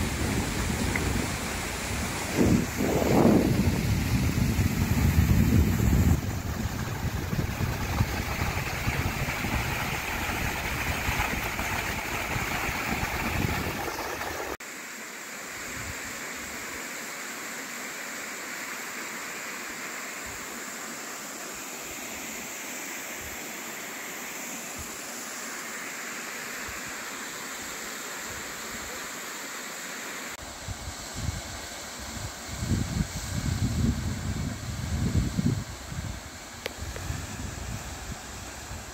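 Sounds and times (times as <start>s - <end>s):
wind buffeting microphone: 0.0s - 14.6s.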